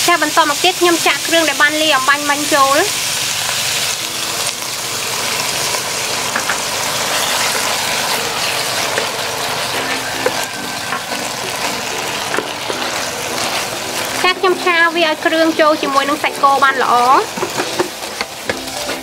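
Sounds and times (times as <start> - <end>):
meat sizzling in oil: 0.0 - 19.0
spatula stirring in pan: 3.0 - 14.7.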